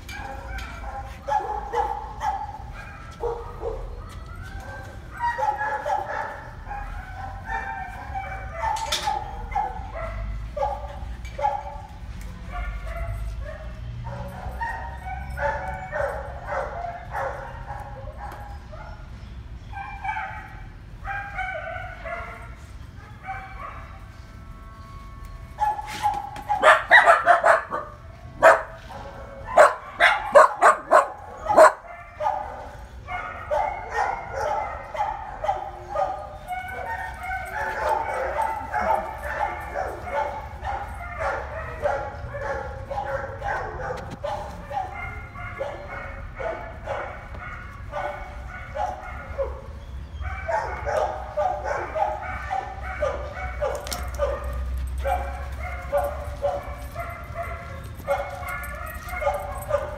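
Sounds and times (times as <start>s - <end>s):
dogs whining and yipping: 0.0s - 59.9s
loud sharp dog barks: 25.8s - 28.8s, 29.5s - 32.4s.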